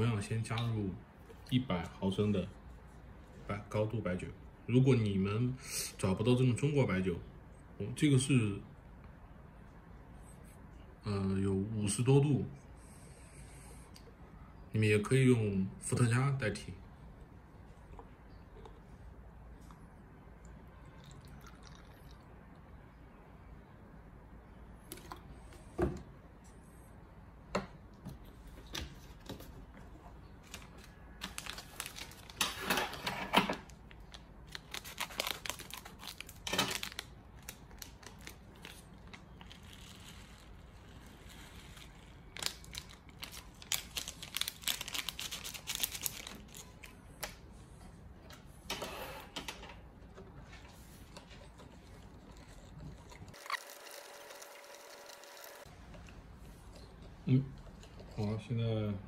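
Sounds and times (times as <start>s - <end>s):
plastic sachet crinkling and tearing: 30.4s - 32.6s, 33.7s - 47.0s.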